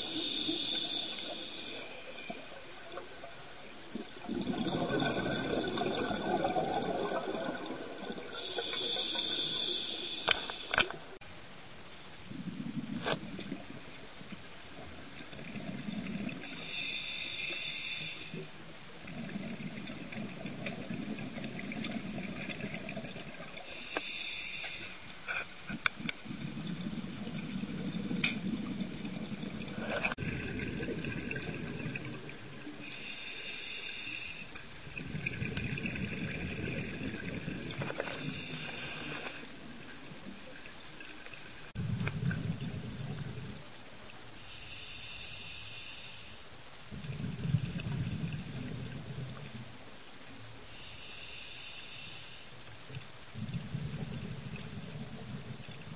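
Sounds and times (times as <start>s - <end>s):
diver breathing through regulator: 0.0s - 2.4s, 8.3s - 10.9s, 16.4s - 18.5s, 23.6s - 25.5s, 32.8s - 34.5s, 37.9s - 39.5s, 44.4s - 46.4s, 50.7s - 52.5s.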